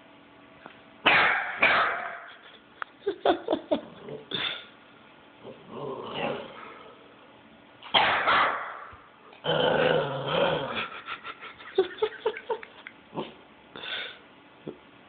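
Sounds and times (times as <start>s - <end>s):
puppy barking: 1.1s - 2.4s, 7.9s - 9.0s.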